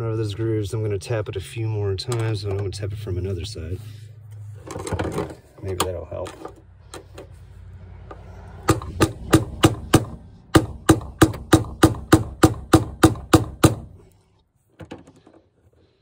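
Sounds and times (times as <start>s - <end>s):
hammer tapping a screwdriver: 8.7s - 13.8s.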